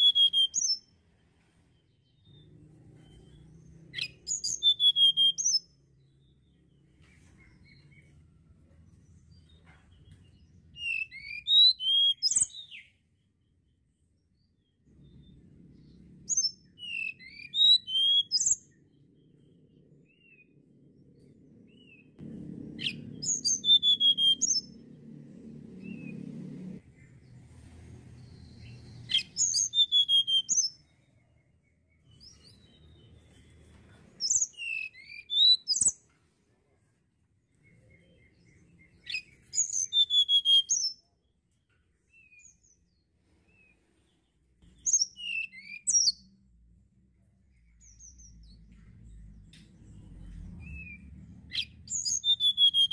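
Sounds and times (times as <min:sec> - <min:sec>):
faint low hum: 0:18.5 - 0:29.2, 0:46.2 - 0:52.0.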